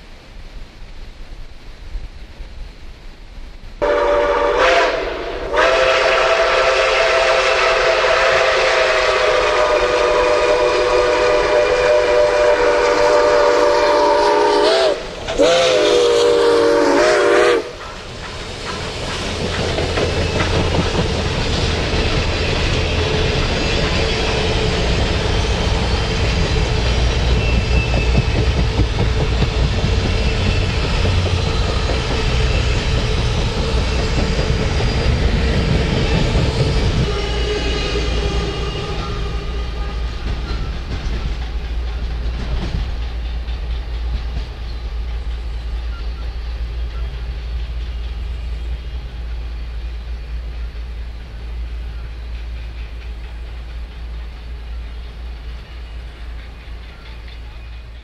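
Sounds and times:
train rolling by rumbling: 0:00.0 - 0:58.0
chime steam whistle blasts: 0:03.8 - 0:17.9, 0:22.5 - 0:28.7, 0:30.0 - 0:40.9.

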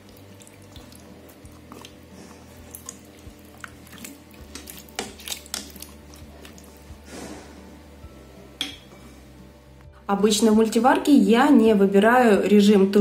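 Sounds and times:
spatula stirring potatoes in water: 0:00.0 - 0:07.0.

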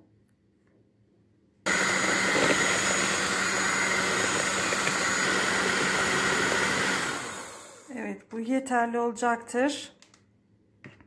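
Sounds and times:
electric hand mixer running: 0:01.7 - 0:07.9.

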